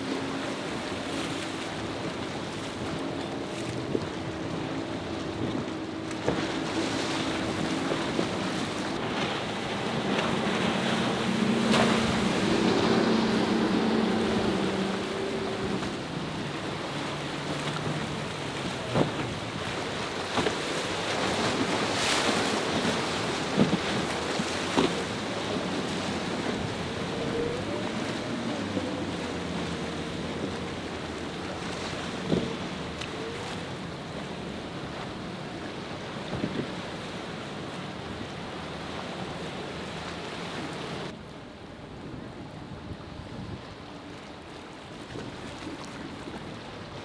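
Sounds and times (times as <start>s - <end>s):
boat engine drone: 0.0s - 47.0s
hulls smacking on waves: 0.0s - 47.0s
rushing spray and waves: 0.0s - 47.0s
wind on microphone: 1.7s - 20.6s, 21.2s - 34.1s, 41.8s - 44.1s.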